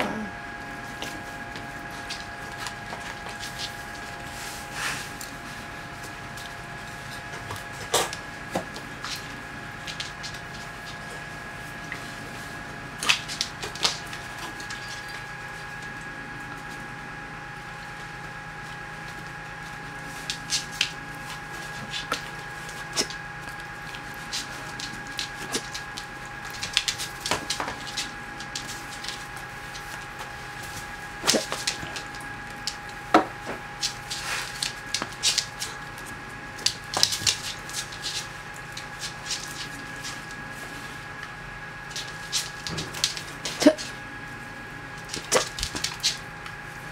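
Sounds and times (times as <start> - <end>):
faint hum: 0.0 - 46.9
dog claws clicking on floor: 1.0 - 4.2, 6.0 - 11.3, 13.0 - 16.0, 19.0 - 40.4, 41.8 - 43.9, 45.0 - 46.6.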